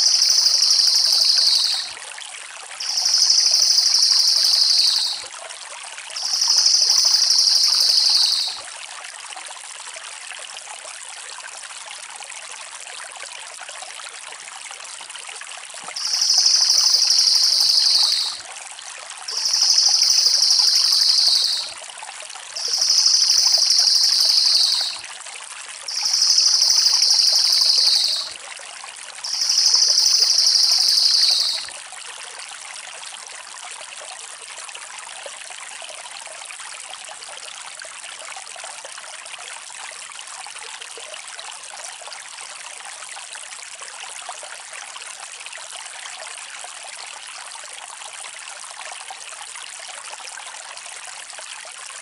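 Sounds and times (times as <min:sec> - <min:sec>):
songbird trilling: 0:00.0 - 0:01.9, 0:02.8 - 0:05.2, 0:06.2 - 0:08.6, 0:16.0 - 0:18.4, 0:19.3 - 0:21.7, 0:22.6 - 0:25.0, 0:25.9 - 0:28.3, 0:29.3 - 0:31.7
running water: 0:00.0 - 0:02.0, 0:02.7 - 0:05.4, 0:06.1 - 0:08.8, 0:15.7 - 0:25.2, 0:25.9 - 0:31.9.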